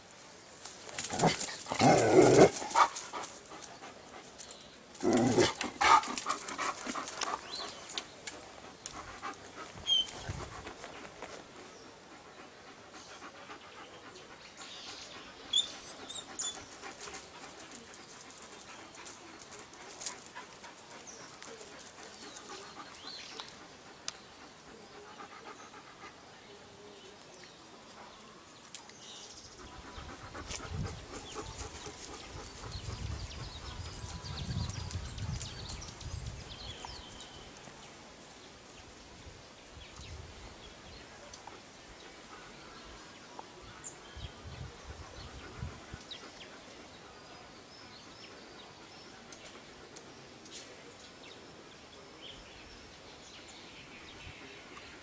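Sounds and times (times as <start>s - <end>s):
dog panting: 5.4s - 26.3s, 29.5s - 34.9s.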